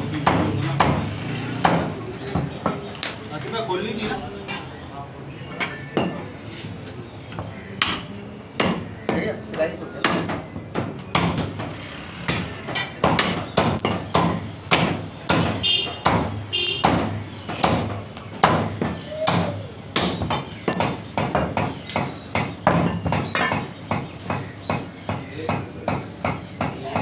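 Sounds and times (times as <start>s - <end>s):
cleaver chopping on wooden block: 12.3s - 27.0s.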